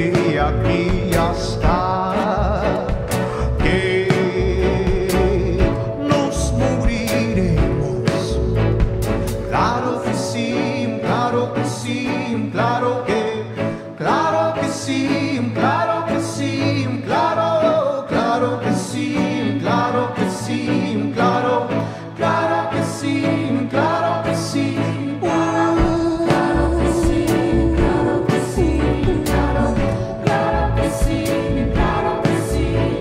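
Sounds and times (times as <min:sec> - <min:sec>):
man singing: 0:00.0 - 0:08.8, 0:09.5 - 0:18.8
band with strings playing: 0:00.0 - 0:33.0.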